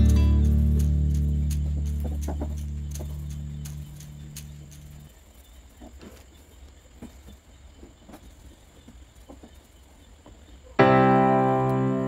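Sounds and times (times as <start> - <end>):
piano music: 0.0 - 2.1, 10.8 - 12.0.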